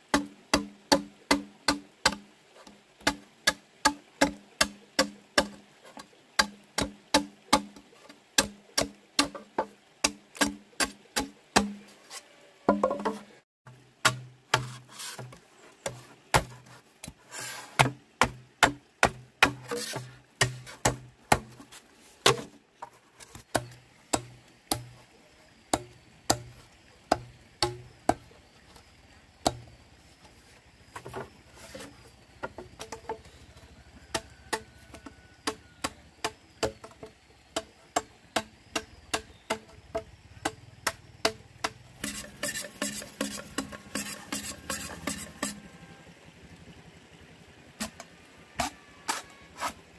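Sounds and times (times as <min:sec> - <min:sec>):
machete chopping bamboo: 0:00.1 - 0:02.3, 0:03.0 - 0:11.9, 0:14.0 - 0:22.6, 0:23.3 - 0:25.0, 0:25.7 - 0:28.2, 0:29.4 - 0:29.7, 0:34.1 - 0:45.6, 0:47.8 - 0:49.8.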